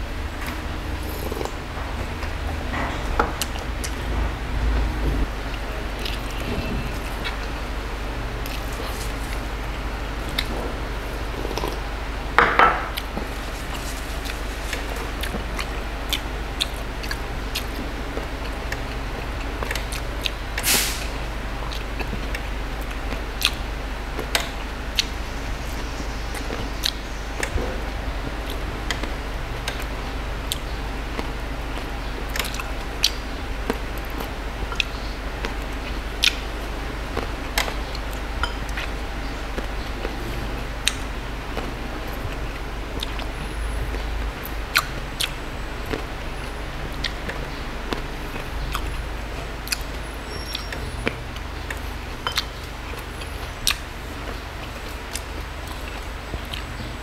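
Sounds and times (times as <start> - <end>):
low hum and hiss: 0.0 - 57.0
wet chewing clicks and smacks: 0.4 - 7.6, 8.2 - 11.9, 12.7 - 57.0.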